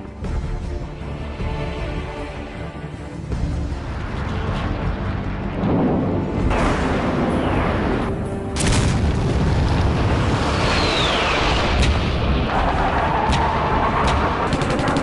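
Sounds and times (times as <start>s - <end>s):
dramatic soundtrack music: 0.0s - 15.0s
explosion boom: 8.6s - 10.8s
falling whistle: 10.6s - 11.4s.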